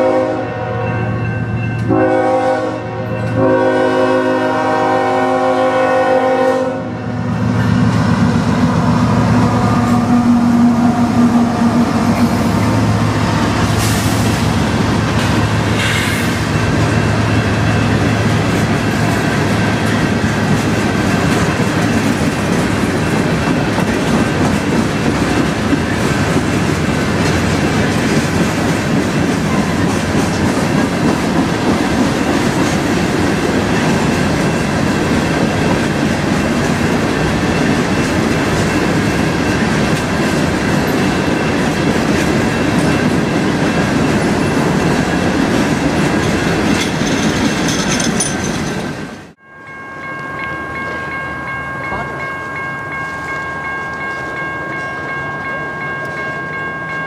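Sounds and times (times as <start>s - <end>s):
locomotive air horn: 0.0s - 1.2s, 1.8s - 7.2s
train wheels clacking on rails: 7.6s - 49.4s.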